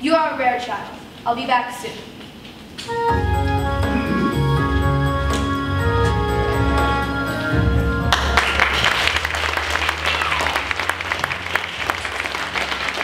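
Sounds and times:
music with sustained notes: 2.9s - 13.0s
audience applauding: 8.0s - 13.0s.

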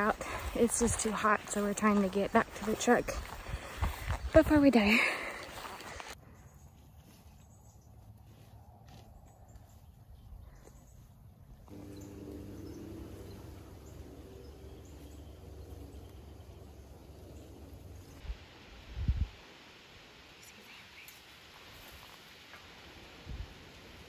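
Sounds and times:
faint steady hum: 11.7s - 21.2s
wind rumble on microphone: 17.6s - 19.4s, 23.2s - 23.6s.

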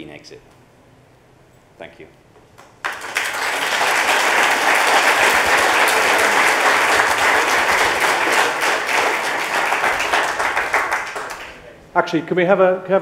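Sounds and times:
audience applauding: 2.8s - 11.7s.

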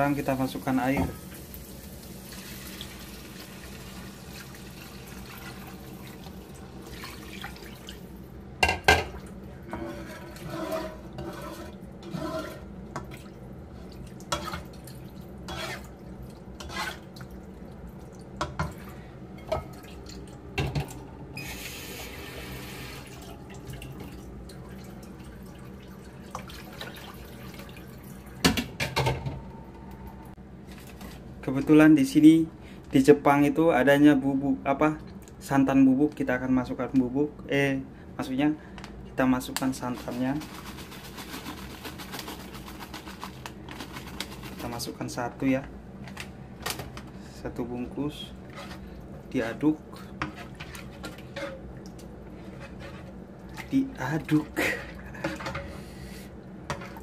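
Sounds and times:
water pouring into pot: 0.5s - 8.2s.

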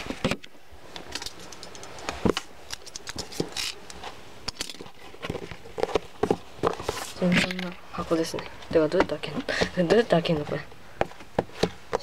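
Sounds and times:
cardboard box being handled: 4.8s - 7.4s.

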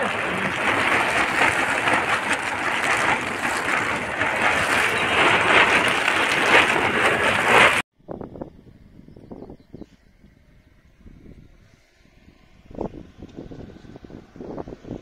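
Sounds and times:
heavy rain and wind on tent: 0.0s - 7.8s.

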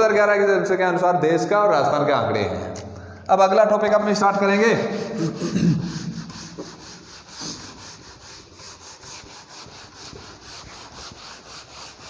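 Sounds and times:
eraser rubbing on whiteboard: 4.0s - 12.0s.

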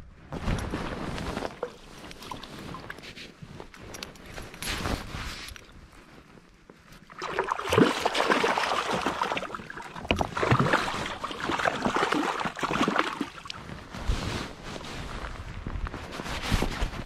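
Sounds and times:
fish splashing in shallow water: 7.0s - 13.6s.

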